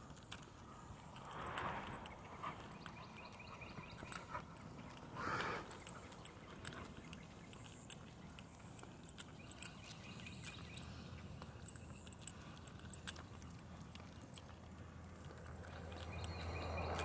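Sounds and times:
dog breathing hard: 0.7 - 7.7.

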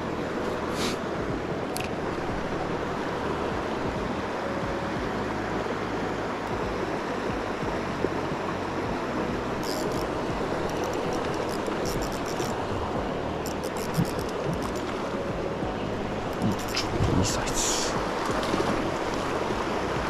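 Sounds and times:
river flowing over stones: 0.0 - 20.0
fishing reel clicks: 9.6 - 12.6, 13.4 - 15.0, 16.3 - 16.9.

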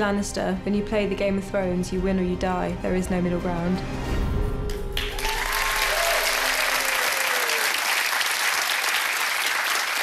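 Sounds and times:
audience applauding: 5.0 - 10.0.

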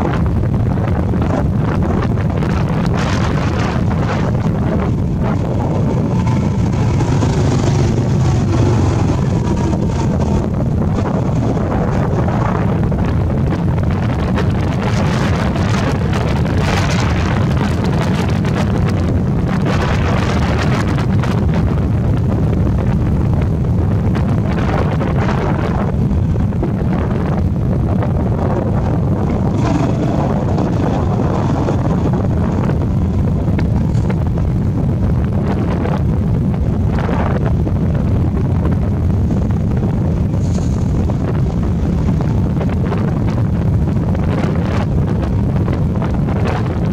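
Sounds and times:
wind buffeting microphone: 0.0 - 46.9
motorbike engine running: 0.8 - 36.0.

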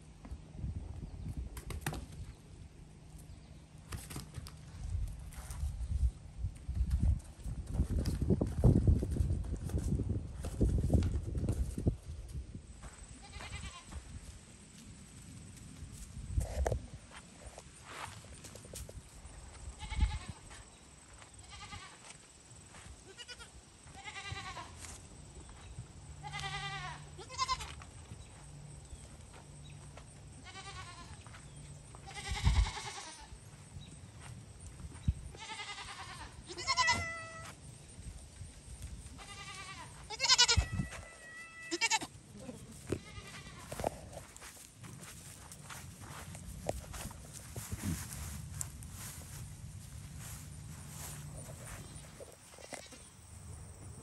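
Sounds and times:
goat kids bleating: 13.2 - 14.0, 19.8 - 20.4, 21.4 - 22.1, 23.0 - 24.9, 26.2 - 27.8, 30.4 - 31.3, 32.0 - 33.3, 35.3 - 37.6, 39.1 - 44.2, 51.0 - 53.0.

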